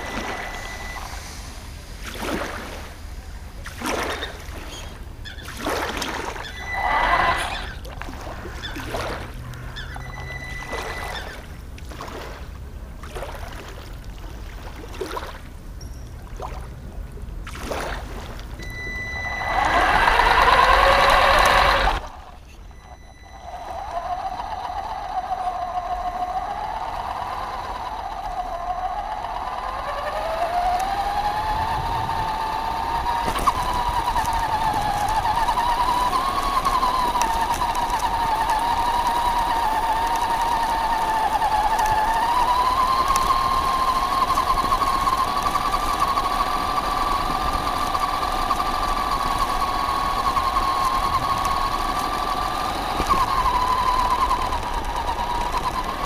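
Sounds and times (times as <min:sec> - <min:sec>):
electric motor whine: 0:00.0 - 0:05.0, 0:05.9 - 0:11.7, 0:18.6 - 0:56.0
splashing through water: 0:00.0 - 0:09.8, 0:10.6 - 0:15.5, 0:16.3 - 0:18.6.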